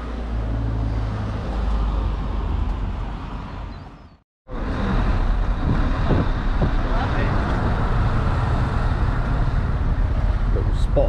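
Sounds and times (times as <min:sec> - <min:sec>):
wind buffeting microphone: 0:04.0 - 0:11.0.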